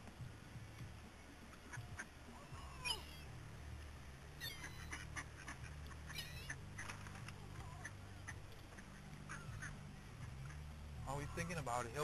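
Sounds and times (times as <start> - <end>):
steady low hum: 0.0 - 12.0
gulls calling: 1.4 - 3.5, 4.3 - 12.0
ducks quacking: 1.5 - 3.3, 4.4 - 11.7.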